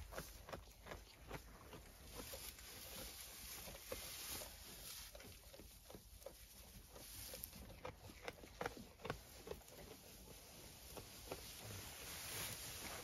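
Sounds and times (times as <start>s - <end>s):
livestock shifting in straw: 0.0s - 13.0s
sheep eating hay: 0.0s - 13.0s
low steady hiss: 10.0s - 13.0s.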